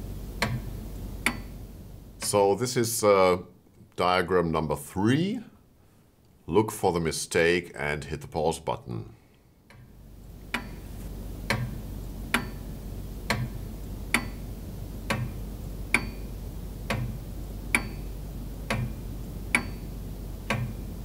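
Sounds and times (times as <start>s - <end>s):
steady low background drone: 0.0s - 3.0s
clock ticking: 9.7s - 10.8s, 11.4s - 12.6s, 13.3s - 14.4s, 15.0s - 20.9s.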